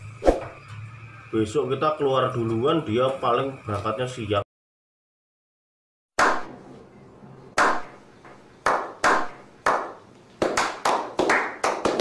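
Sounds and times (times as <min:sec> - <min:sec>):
sharp hand slaps: 0:06.2 - 0:06.5, 0:07.6 - 0:08.0, 0:08.6 - 0:12.0.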